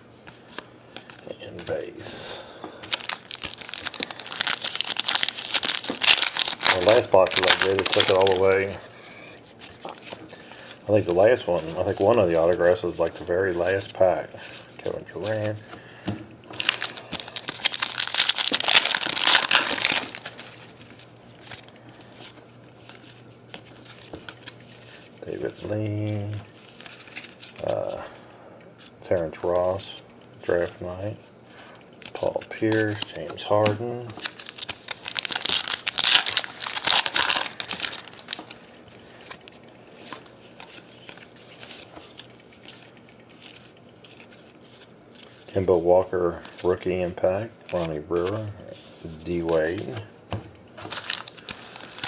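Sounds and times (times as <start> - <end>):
faint rustling of cards: 0.2 - 28.2, 28.8 - 50.2, 50.8 - 52.0
foil wrapper crinkling: 2.9 - 8.8, 16.5 - 25.1, 32.1 - 45.6, 50.8 - 52.0.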